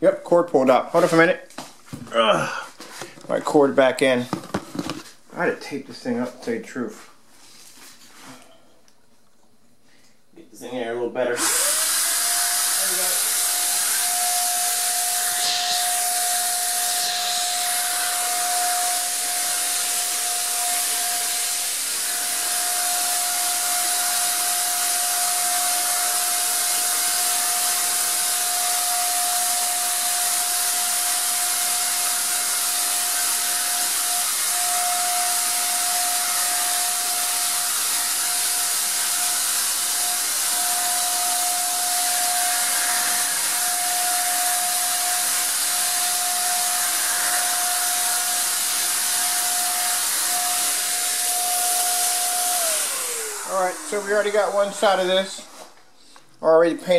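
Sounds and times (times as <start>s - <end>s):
motor whine: 11.4s - 54.9s
paint sprayer hissing: 29.4s - 55.4s.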